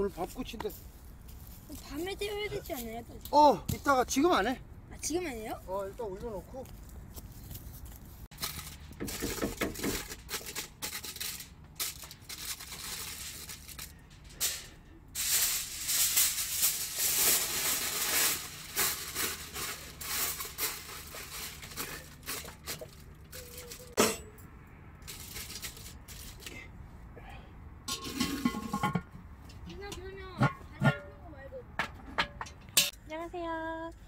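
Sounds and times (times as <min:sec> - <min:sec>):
aluminium foil crinkling: 0:07.4 - 0:24.0, 0:25.0 - 0:26.6
metal rack clinking in pot: 0:23.8 - 0:24.4.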